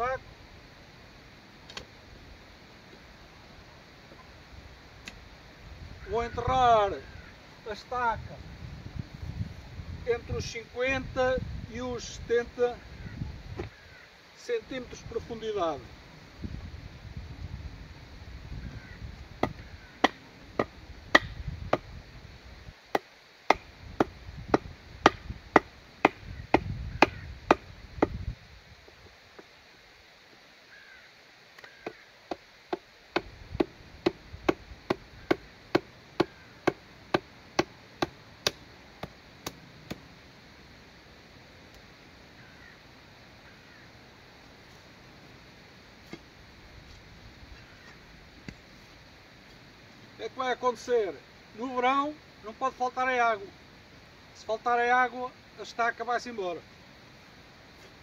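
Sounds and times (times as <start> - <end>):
wind rumble on microphone: 5.6 - 7.2, 8.0 - 13.8, 14.9 - 19.9, 20.5 - 22.8, 23.7 - 29.1, 33.2 - 35.3
hammer striking wooden stake: 19.4 - 21.9, 22.9 - 28.2, 31.6 - 40.0.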